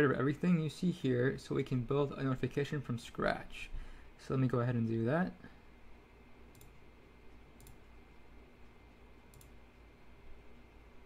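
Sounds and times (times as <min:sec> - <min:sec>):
low steady hum: 0:00.0 - 0:11.0
computer mouse clicks: 0:06.5 - 0:06.8, 0:07.6 - 0:07.9, 0:09.3 - 0:09.6.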